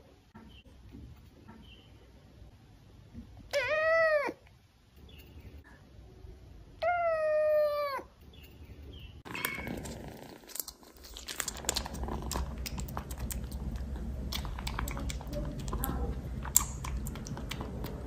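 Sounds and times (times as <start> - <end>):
kitten meowing: 3.5 - 4.4
kitten licking and chewing: 9.3 - 18.0.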